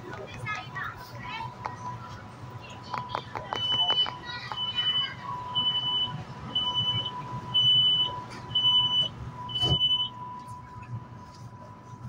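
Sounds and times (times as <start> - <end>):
faint train whine: 0.0 - 12.0
door-closing warning beeps: 2.9 - 10.2
train doors thudding shut: 9.5 - 9.9.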